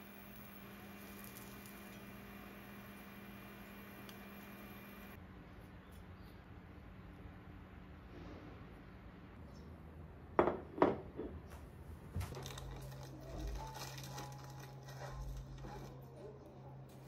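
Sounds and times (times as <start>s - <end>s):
low steady hum: 0.0s - 10.7s.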